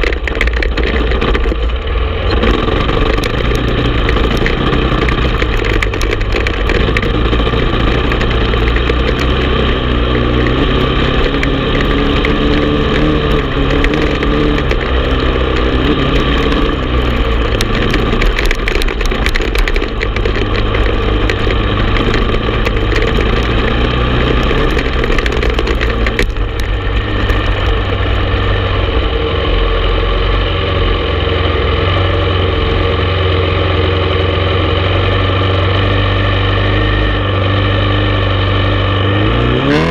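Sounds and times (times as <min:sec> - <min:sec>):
clicks and knocks: 0:00.0 - 0:28.5
atv engine running: 0:00.0 - 0:39.9.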